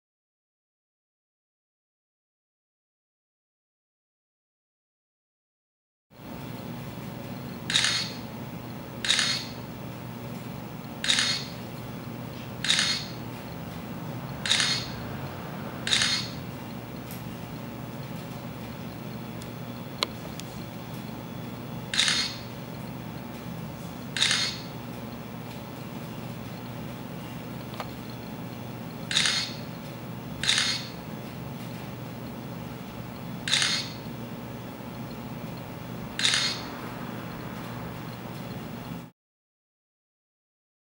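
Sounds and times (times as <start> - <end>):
camera shutter sound effect: 7.7 - 8.2, 9.0 - 9.6, 11.0 - 11.6, 12.6 - 13.2, 14.4 - 15.0, 15.9 - 16.4, 21.9 - 22.4, 24.2 - 24.7, 29.1 - 29.6, 30.4 - 30.9, 33.4 - 34.0, 36.2 - 37.6.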